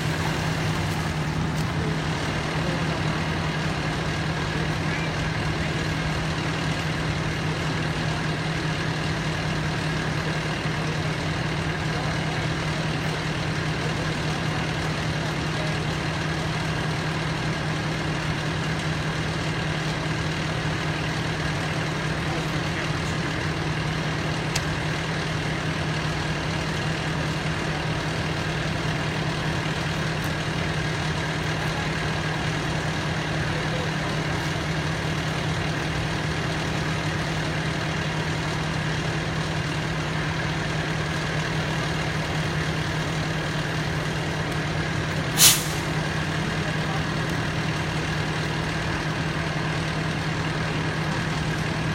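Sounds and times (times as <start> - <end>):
diesel engine idling: 0.0 - 51.9
sharp hiss of air: 45.4 - 46.0.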